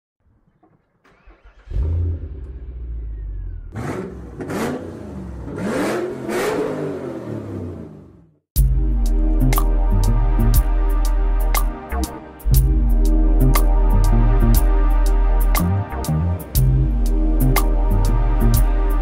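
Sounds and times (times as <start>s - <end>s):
car engine starting and revving: 1.0s - 8.4s.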